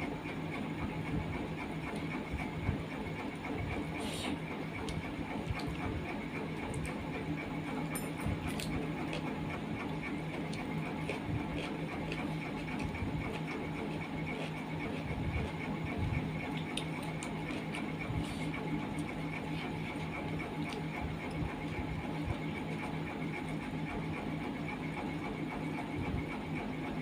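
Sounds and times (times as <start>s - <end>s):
mechanical hum with pulsing whir: 0.0s - 27.0s
eating by hand smacks: 4.2s - 5.9s, 6.5s - 7.0s, 8.1s - 15.6s, 16.4s - 21.8s.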